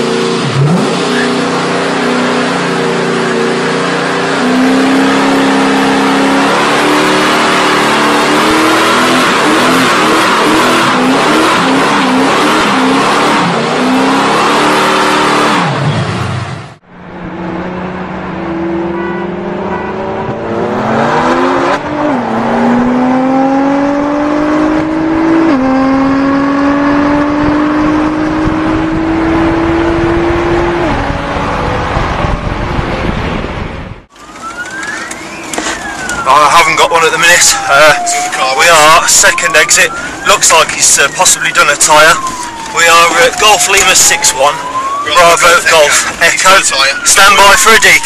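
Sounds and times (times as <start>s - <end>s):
sports car engine accelerating: 0.0s - 36.2s
car engine revving during burnout: 0.0s - 48.0s.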